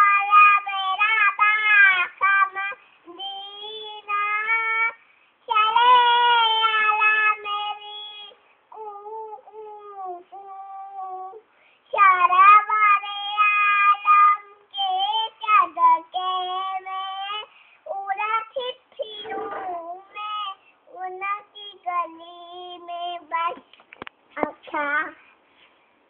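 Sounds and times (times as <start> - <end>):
child singing: 0.0 - 23.7, 24.4 - 25.2.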